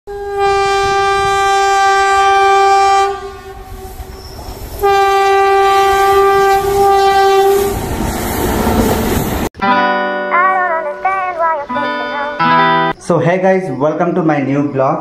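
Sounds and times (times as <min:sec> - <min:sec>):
train horn blasts: 0:00.1 - 0:04.1, 0:04.8 - 0:07.8
train coaches rumbling on track: 0:00.2 - 0:09.5.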